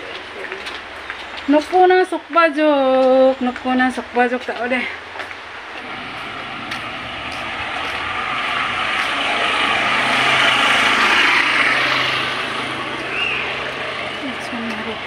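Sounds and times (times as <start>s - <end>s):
vehicle passing: 5.6s - 15.0s.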